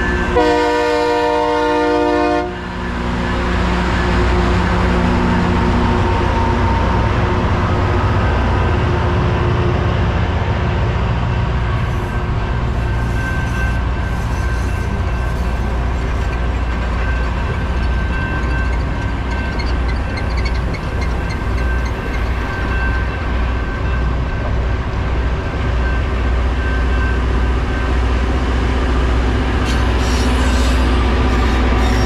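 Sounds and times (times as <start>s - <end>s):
train diesel engines rumbling: 0.0s - 32.0s.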